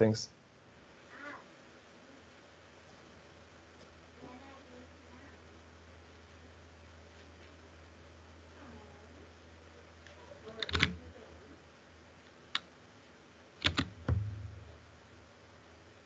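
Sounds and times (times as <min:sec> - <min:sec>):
faint low hum: 0:00.0 - 0:16.0
sharp clicks and knocks: 0:13.6 - 0:14.8
low thud: 0:14.0 - 0:14.8.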